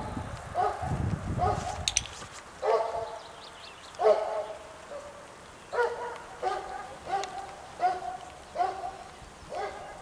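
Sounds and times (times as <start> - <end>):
puppy barking: 0.6 - 1.8, 2.6 - 3.2, 4.0 - 10.0.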